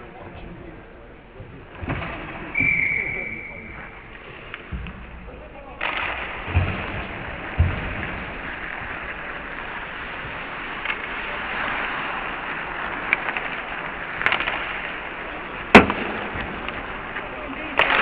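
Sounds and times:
sticks and puck clacking: 1.4s - 18.0s
skates hissing on ice: 5.9s - 18.0s.

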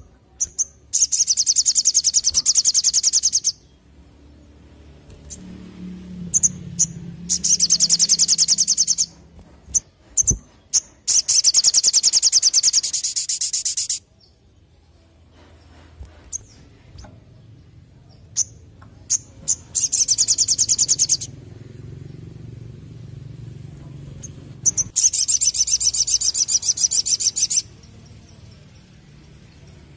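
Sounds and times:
sharp bird chirps: 0.4s - 3.8s, 6.3s - 14.4s, 18.1s - 21.3s, 24.2s - 28.6s.

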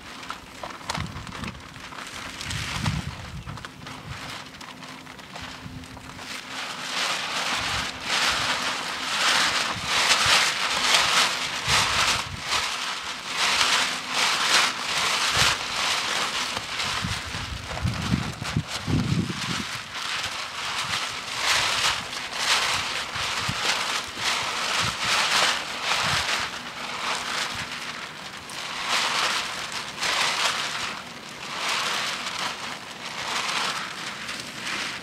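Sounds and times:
paper crackling and rustling: 0.0s - 35.0s.

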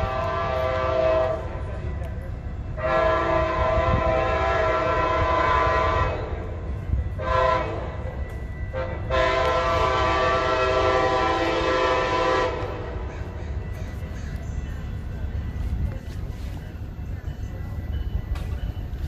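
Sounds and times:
train horn blasts: 0.0s - 1.7s, 2.7s - 13.1s
low train rumble: 0.0s - 19.0s.

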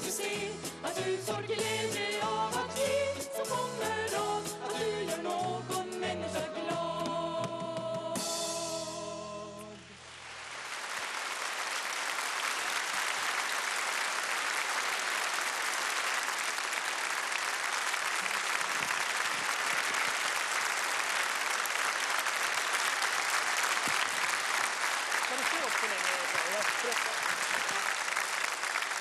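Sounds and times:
audience applause: 10.2s - 29.0s.

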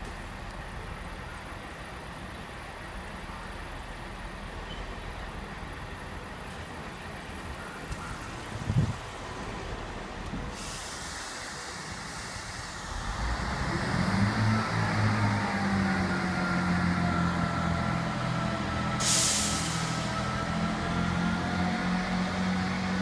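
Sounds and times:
diesel train engine: 0.0s - 23.0s
brake air hiss: 10.3s - 13.7s, 18.9s - 20.3s.

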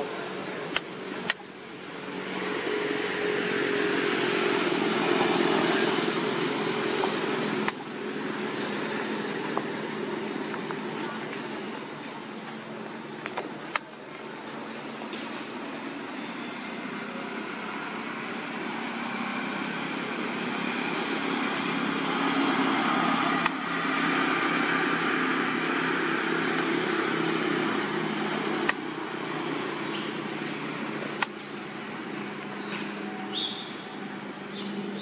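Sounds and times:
sharp clicks: 0.7s - 1.4s, 31.2s - 31.4s.

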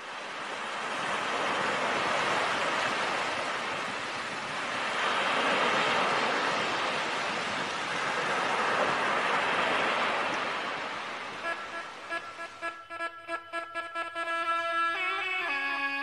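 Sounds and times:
waves breaking on beach: 0.0s - 16.0s
music with held notes: 11.4s - 16.0s.

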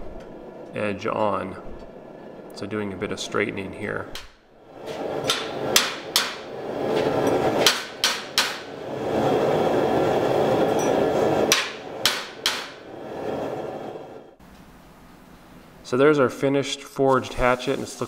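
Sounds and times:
steady rushing noise: 4.6s - 14.4s
hammer striking hot metal: 4.9s - 9.0s, 10.7s - 12.9s.

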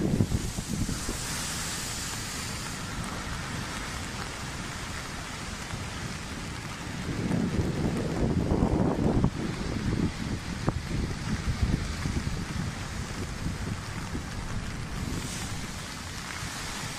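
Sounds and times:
hiss of falling spray: 0.0s - 6.1s, 11.6s - 16.9s
storm waves crashing on seawall: 0.0s - 16.9s.

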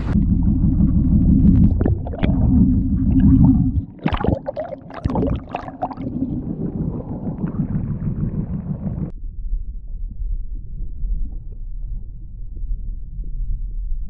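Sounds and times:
boat engine rumbling: 0.0s - 9.1s.

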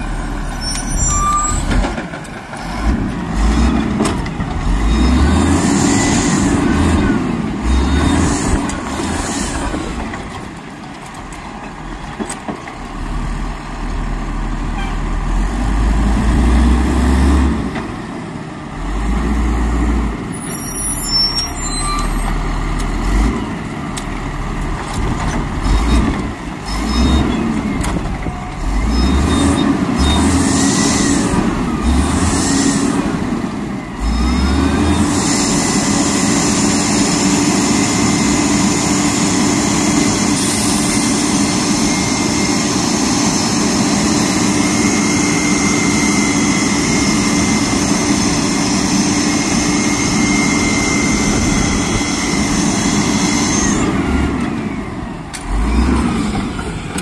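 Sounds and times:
diesel truck engine revving: 0.0s - 10.1s, 12.9s - 18.0s, 21.8s - 57.0s
engine whine: 22.5s - 57.0s.

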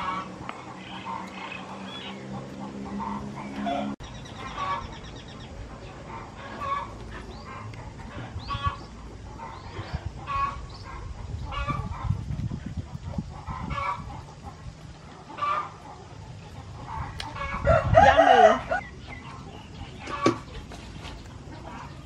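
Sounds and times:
chickens clucking: 0.0s - 22.0s
rooster crowing: 17.4s - 18.9s.

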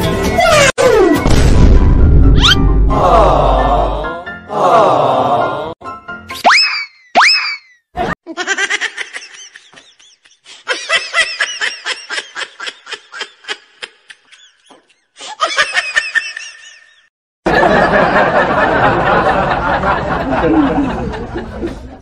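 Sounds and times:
cartoon giggling laughter: 6.5s - 19.0s.

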